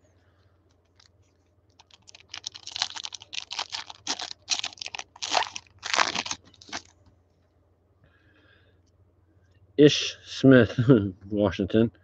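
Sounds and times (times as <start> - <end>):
foil wrapper crinkling and tearing: 1.7 - 6.9.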